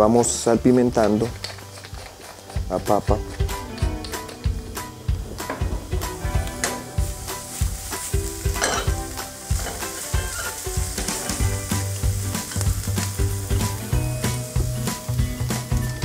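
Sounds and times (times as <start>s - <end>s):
food sizzling in oil: 0.0s - 16.0s
utensil scraping pan: 5.4s - 11.6s.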